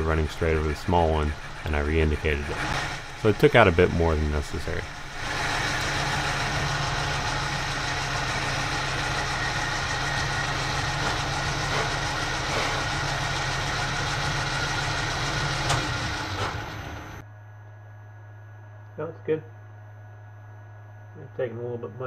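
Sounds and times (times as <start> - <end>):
lathe cutting whir: 0.0 - 17.2
lathe motor hum: 0.0 - 17.2.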